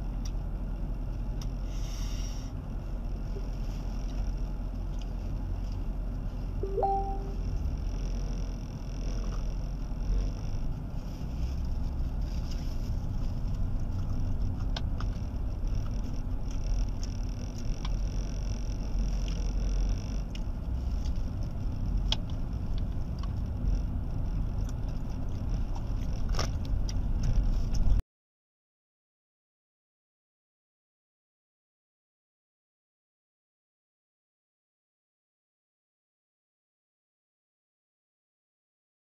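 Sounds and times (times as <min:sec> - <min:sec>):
car cabin rumble: 0:02.6 - 0:28.0.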